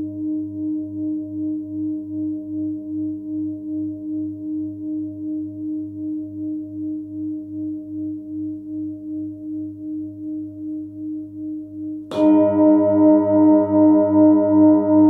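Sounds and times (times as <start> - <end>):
singing bowl ringing with beat: 0.0 - 15.0
padded mallet striking bowl: 12.1 - 15.0.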